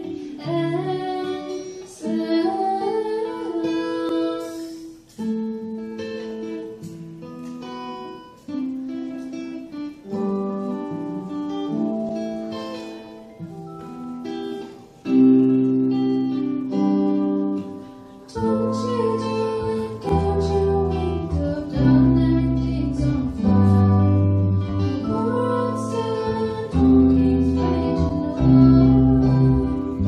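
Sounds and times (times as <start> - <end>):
woman singing: 0.0 - 5.1, 18.3 - 30.0
acoustic guitar strumming: 0.0 - 30.0
low bass notes: 18.4 - 30.0.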